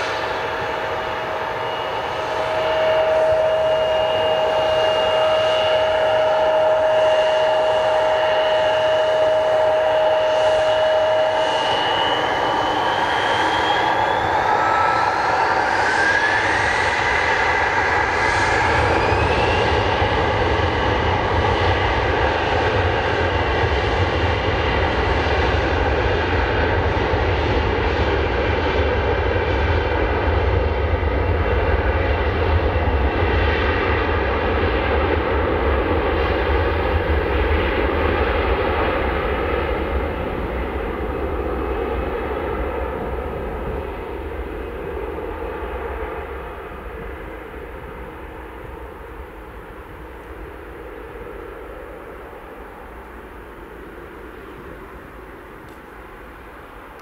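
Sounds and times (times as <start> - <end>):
jet engines spooling up: 0.0 - 57.0
jet roar with deep rumble: 0.0 - 57.0.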